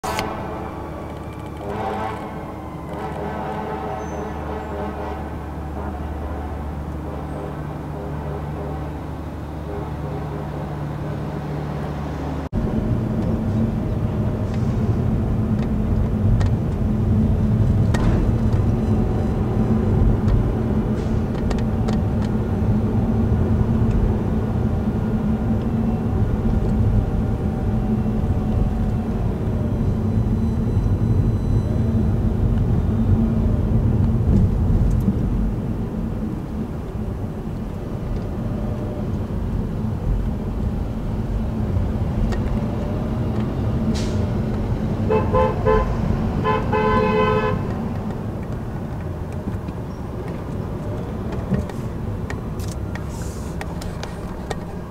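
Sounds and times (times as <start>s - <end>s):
city traffic and engine rumble: 0.0s - 54.9s
vehicle horn honking: 1.6s - 6.0s, 45.1s - 47.9s.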